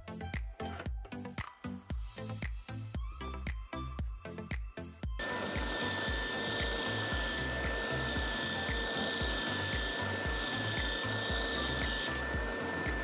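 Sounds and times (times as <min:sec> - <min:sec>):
background music with steady beat: 0:00.0 - 0:13.0
spindle sander grinding steel rod: 0:05.2 - 0:13.0.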